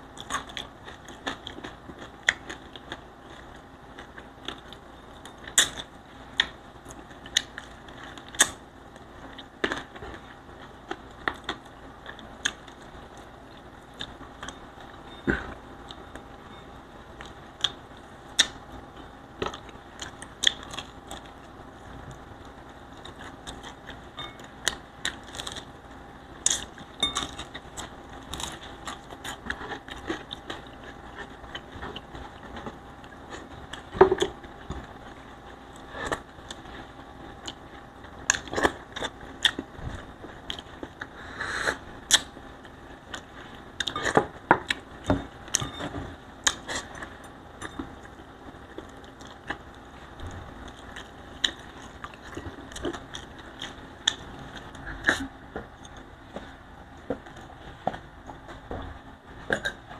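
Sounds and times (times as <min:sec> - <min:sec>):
chewing and lip smacking: 0:19.4 - 0:21.5, 0:48.8 - 0:56.1.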